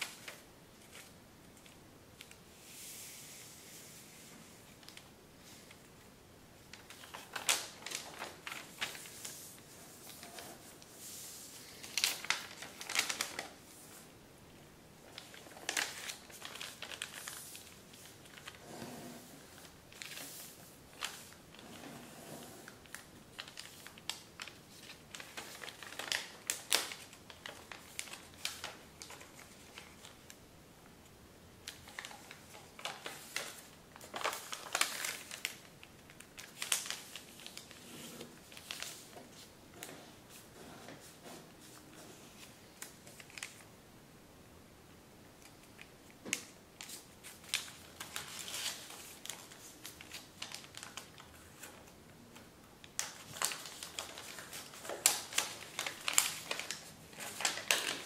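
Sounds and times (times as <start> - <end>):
paper rustling and crinkling: 3.2 - 14.1, 15.0 - 30.4, 31.6 - 43.7, 45.4 - 58.0
paper creases crackling: 6.7 - 13.6, 46.8 - 58.0.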